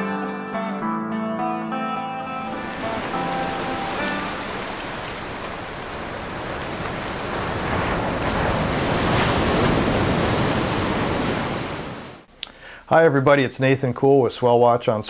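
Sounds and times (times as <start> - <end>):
ocean waves breaking: 2.2 - 12.3.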